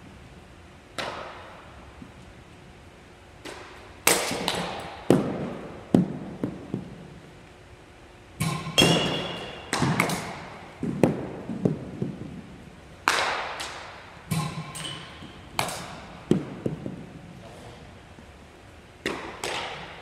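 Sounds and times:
balls hitting net and floor: 0:00.9 - 0:01.7, 0:03.4 - 0:07.3, 0:08.4 - 0:18.3, 0:19.0 - 0:20.0
baseball bat hitting balls: 0:00.9 - 0:01.7, 0:03.4 - 0:07.2, 0:08.4 - 0:17.9, 0:19.0 - 0:20.0.

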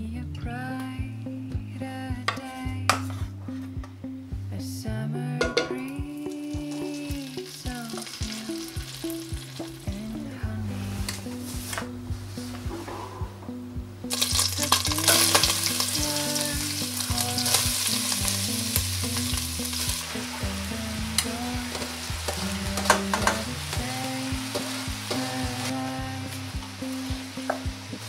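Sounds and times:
food sizzling in a pan: 0:06.6 - 0:10.1, 0:14.1 - 0:28.0.

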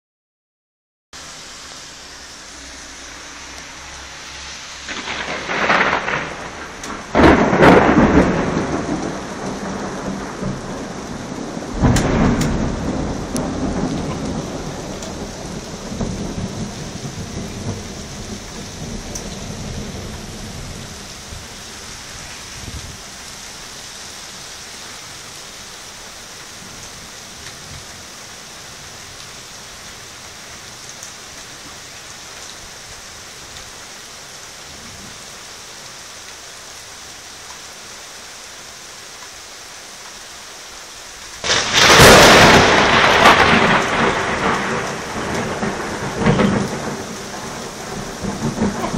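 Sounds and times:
steady rain: 0:01.2 - 0:48.9
thunder bangs and rumble: 0:04.8 - 0:23.0, 0:41.4 - 0:48.9.

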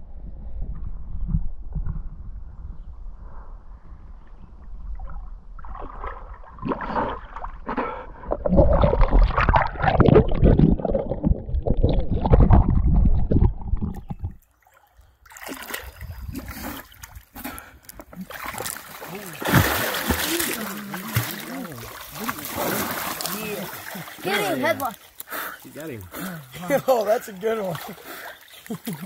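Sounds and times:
low microphone rumble: 0:00.0 - 0:05.8
river water splashing: 0:14.5 - 0:17.3, 0:18.2 - 0:29.0.

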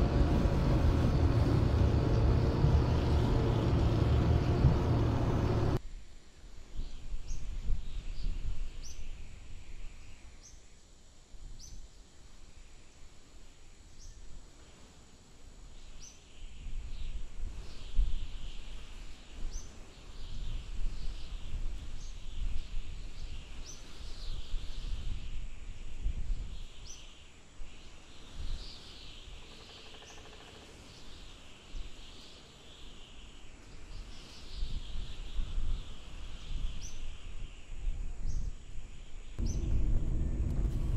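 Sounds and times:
low wind rumble: 0:00.0 - 0:05.8, 0:39.4 - 0:40.9.

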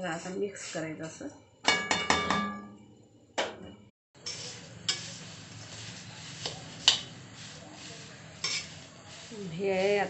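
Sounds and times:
spatula clinking on pan: 0:01.7 - 0:02.8, 0:08.4 - 0:08.7
spatula scraping dry flakes: 0:04.2 - 0:10.0.

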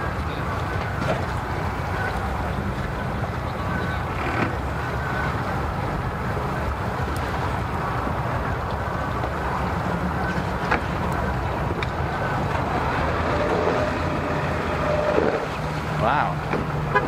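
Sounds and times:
vehicle engines idling: 0:00.0 - 0:17.0.

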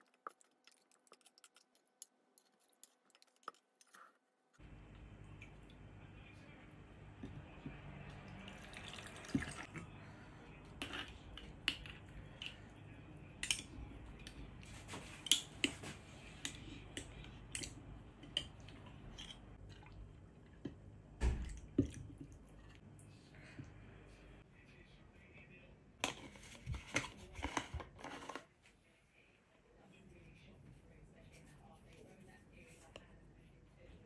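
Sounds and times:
liquid dripping and pouring: 0:08.0 - 0:09.8.

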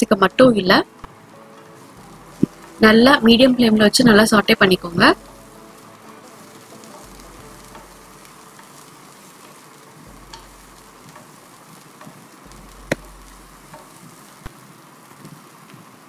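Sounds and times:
vegetables sizzling in oil: 0:00.0 - 0:16.0
sharp tap: 0:12.9 - 0:13.1.

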